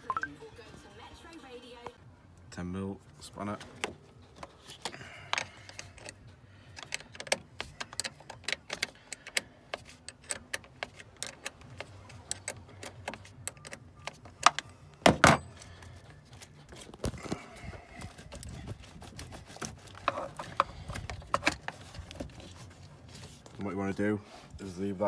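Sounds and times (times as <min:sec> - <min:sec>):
spanner clicking on metal: 0:06.8 - 0:13.8.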